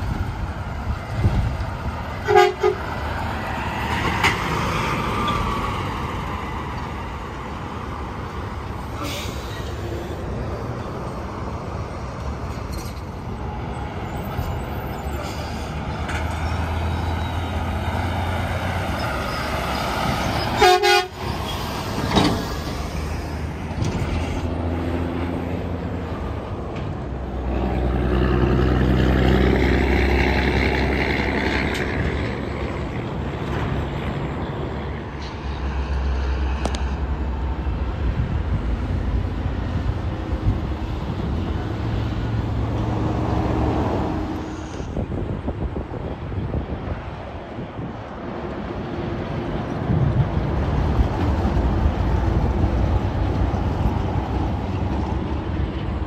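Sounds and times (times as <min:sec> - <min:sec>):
traffic with trucks passing: 0:00.0 - 0:56.0
short horn toot: 0:20.6 - 0:21.2.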